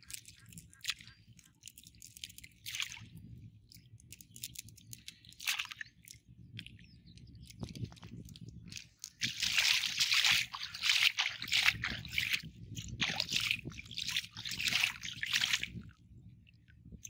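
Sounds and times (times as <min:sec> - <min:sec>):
wet mud squelching: 0:07.8 - 0:15.9.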